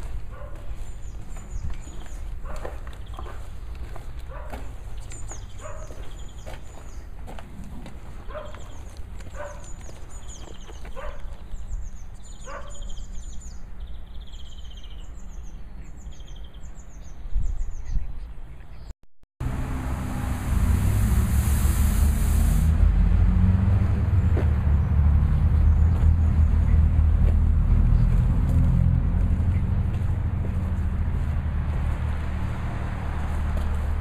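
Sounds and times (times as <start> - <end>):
road traffic rumble: 0.0 - 17.0, 19.4 - 34.0
small birds chirping: 0.0 - 18.9, 24.2 - 28.2.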